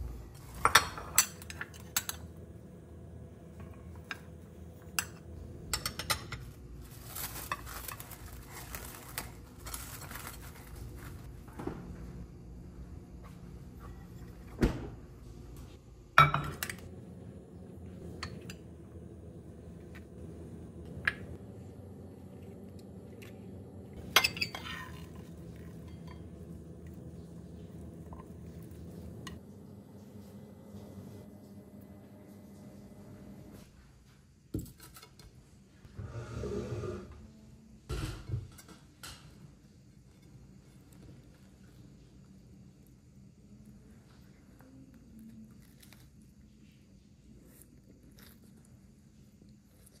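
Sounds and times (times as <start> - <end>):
cling film crinkling: 6.8 - 11.3
tongs clinking on ceramic dishes: 24.1 - 25.1.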